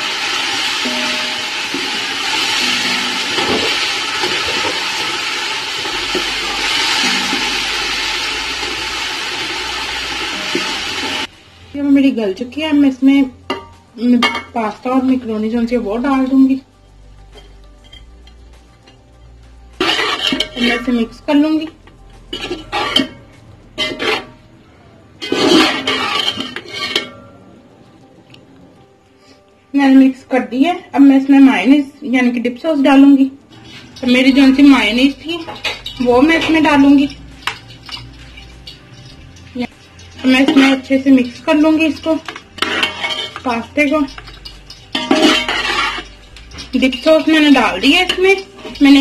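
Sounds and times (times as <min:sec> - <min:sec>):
vegetables sizzling in hot oil: 0:00.0 - 0:16.6, 0:33.0 - 0:49.0
wooden spatula scraping metal pot: 0:19.8 - 0:24.5, 0:25.2 - 0:27.2, 0:33.5 - 0:49.0.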